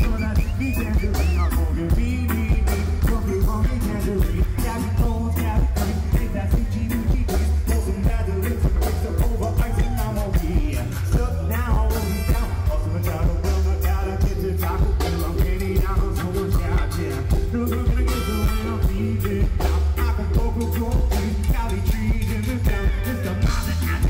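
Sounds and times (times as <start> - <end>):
drum-kit beat: 0.0 - 24.0
heavy bass: 0.0 - 24.0
live reggae band: 0.0 - 24.0
man singing into a microphone: 0.0 - 24.0
saxophones and trumpet: 15.2 - 21.8.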